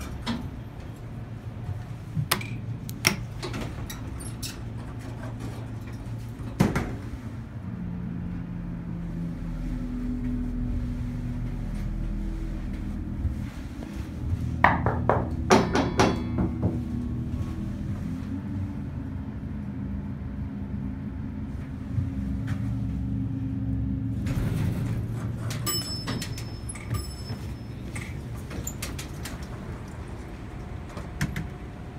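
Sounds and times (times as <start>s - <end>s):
elevator doors rattling: 0.0s - 7.6s, 23.4s - 31.9s
elevator car humming: 0.0s - 31.9s.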